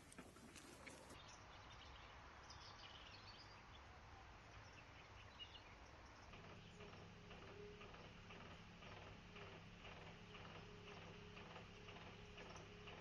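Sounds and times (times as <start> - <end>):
low engine hum: 6.1 - 13.0.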